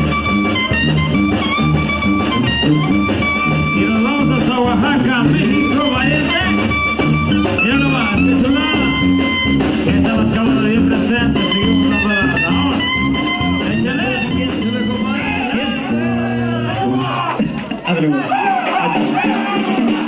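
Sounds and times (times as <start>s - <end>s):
sousaphone bass line: 0.0s - 19.9s
brass band playing: 0.0s - 20.0s
drums: 0.0s - 20.0s
man singing: 3.7s - 6.6s, 7.6s - 16.0s.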